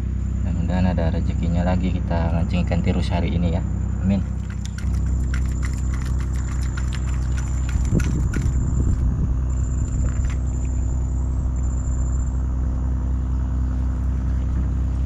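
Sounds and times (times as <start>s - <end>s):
small engine droning: 0.0s - 15.0s
high-pitched insect buzz: 4.3s - 12.9s.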